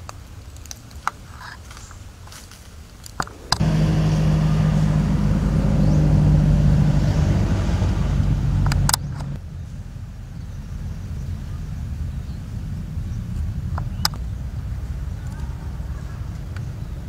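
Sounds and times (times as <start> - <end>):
engine humming: 3.0 - 17.0
sharp clicks: 13.4 - 14.2.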